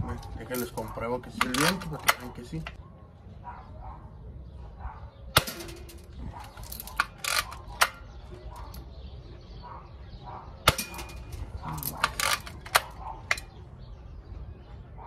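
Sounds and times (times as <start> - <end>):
rifle lever rattle and click: 0.0 - 2.8, 5.4 - 8.9, 10.7 - 13.6.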